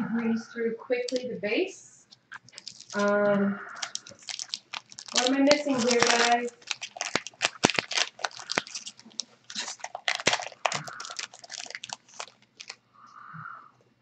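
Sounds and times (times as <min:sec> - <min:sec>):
foil wrapper crinkling: 0:02.2 - 0:12.8.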